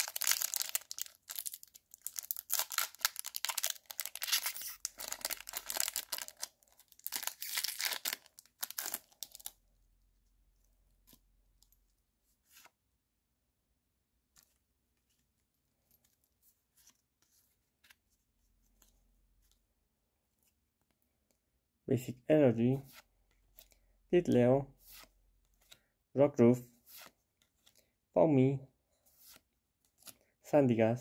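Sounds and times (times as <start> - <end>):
foil wrapper tearing and crinkling: 0.0 - 9.5.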